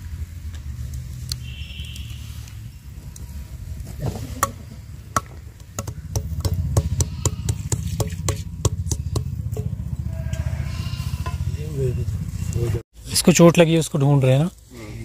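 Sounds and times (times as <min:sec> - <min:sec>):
steady low rumble: 0:02.6 - 0:12.8.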